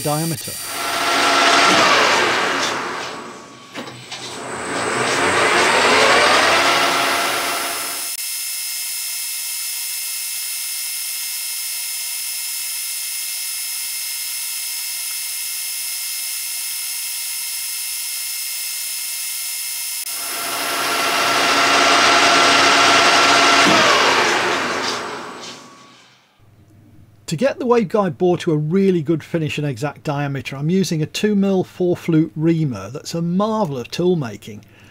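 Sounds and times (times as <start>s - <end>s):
lathe whine with drill boring metal: 0.0s - 26.1s.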